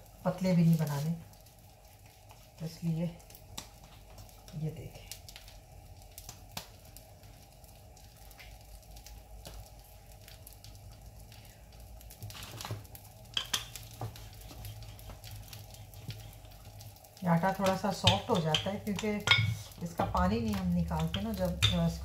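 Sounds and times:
low steady hum: 0:00.0 - 0:22.0
hands shaping dough on counter: 0:13.4 - 0:22.0.

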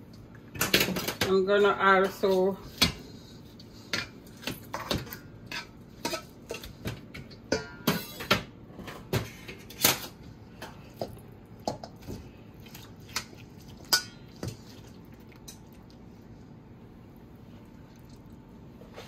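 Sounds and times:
utensils clinking against cookware: 0:04.7 - 0:10.0.

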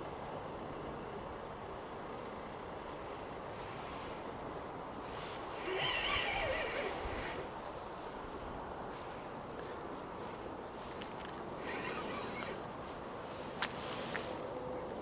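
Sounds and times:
steady outdoor hiss: 0:00.0 - 0:15.0
fishing reel buzzing: 0:05.5 - 0:07.6.

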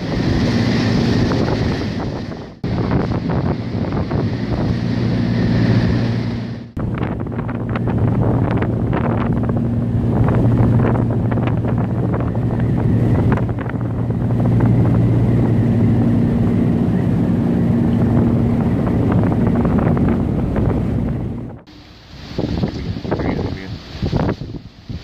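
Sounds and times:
steady low drone: 0:00.0 - 0:22.9
wind gusting on microphone: 0:00.0 - 0:25.0.

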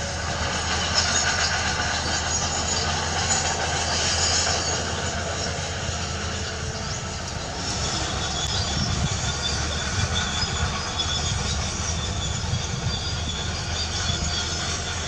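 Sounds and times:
diesel engine drone: 0:00.0 - 0:15.0
high-pitched metallic noise: 0:00.0 - 0:15.0.

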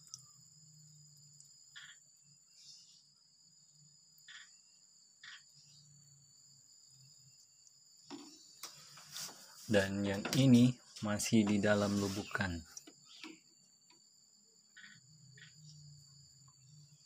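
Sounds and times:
soft rustles: 0:08.6 - 0:09.8.

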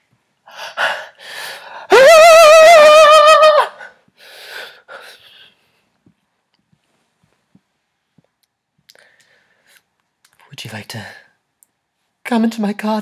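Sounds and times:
man's falsetto wail: 0:01.9 - 0:03.9.

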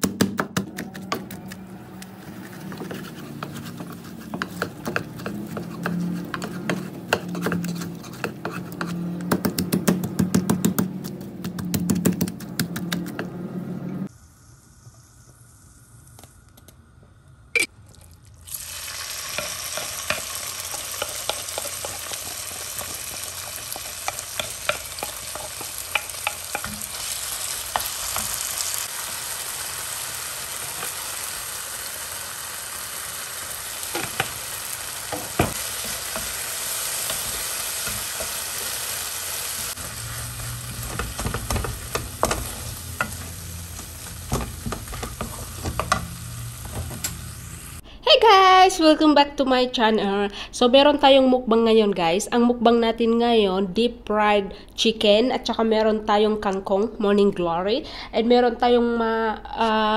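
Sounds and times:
chicken deep-frying in oil: 0:14.1 - 0:47.8.

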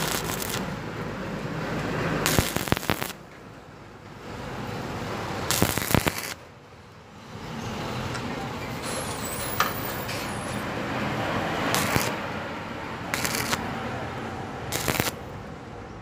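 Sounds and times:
welding arc crackling and hissing: 0:00.0 - 0:00.8, 0:02.2 - 0:03.2, 0:05.4 - 0:06.4, 0:11.6 - 0:12.3, 0:13.1 - 0:13.6, 0:14.6 - 0:15.2.

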